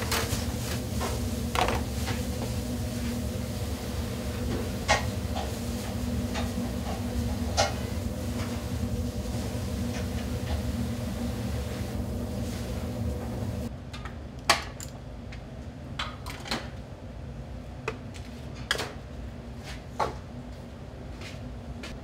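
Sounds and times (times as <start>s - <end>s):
low kitchen hum: 0.0s - 22.0s.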